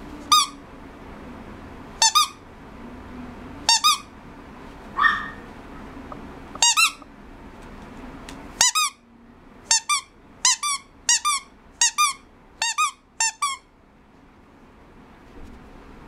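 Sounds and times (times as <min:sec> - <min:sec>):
squeaky toy squeaking: 0:00.3 - 0:00.6, 0:02.0 - 0:02.4, 0:03.7 - 0:04.1, 0:06.6 - 0:07.1, 0:08.6 - 0:09.0, 0:09.7 - 0:13.7.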